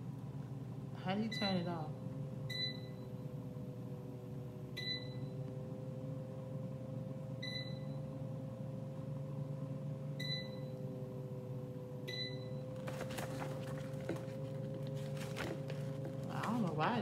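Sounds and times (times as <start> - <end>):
air fryer humming: 0.0 - 17.0
paper rustling: 12.8 - 17.0.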